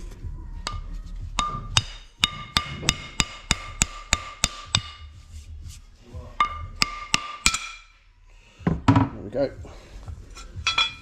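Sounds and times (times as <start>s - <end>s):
hammer striking metal ring gear: 1.4s - 5.1s, 6.4s - 8.0s, 10.4s - 11.0s.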